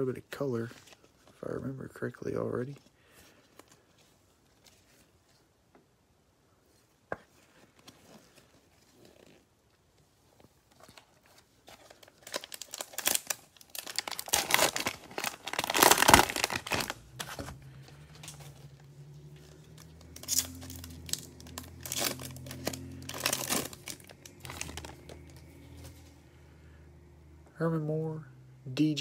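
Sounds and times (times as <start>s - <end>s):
plastic wrapper crinkling: 10.2s - 26.0s.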